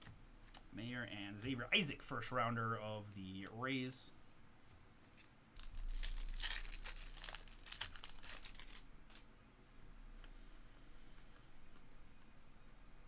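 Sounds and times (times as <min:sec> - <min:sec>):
plastic wrapper tearing and crinkling: 0:05.6 - 0:09.2.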